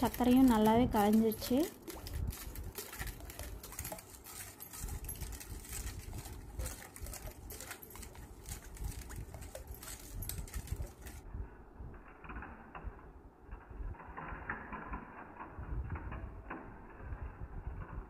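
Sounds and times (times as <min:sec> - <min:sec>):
spoon scraping metal bowl: 0:00.0 - 0:11.2.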